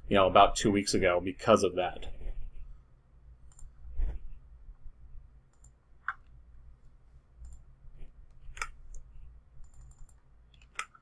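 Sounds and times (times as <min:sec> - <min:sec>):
faint low hum: 0:00.0 - 0:11.0
computer mouse clicks: 0:03.5 - 0:03.8, 0:05.5 - 0:06.3, 0:07.4 - 0:07.7, 0:08.3 - 0:11.0.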